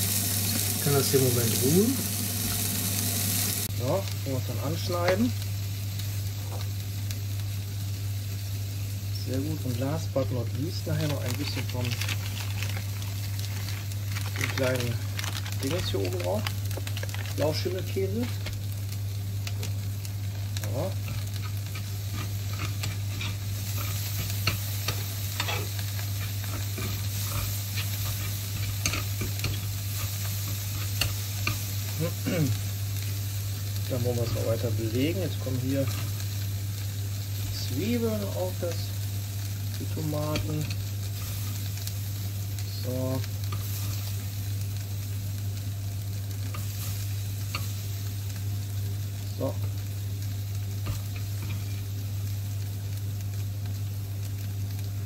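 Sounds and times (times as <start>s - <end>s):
steady low hum: 0.0s - 54.2s
onions sizzling in grill pan: 0.0s - 55.0s
metal tongs scraping pan: 21.0s - 31.6s.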